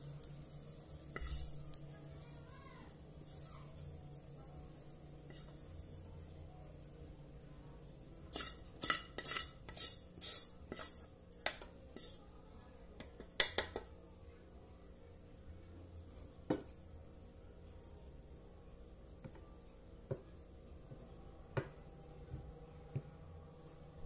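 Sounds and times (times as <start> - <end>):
spatula scraping metal wok: 1.0 - 1.8, 5.2 - 6.1, 8.3 - 12.3.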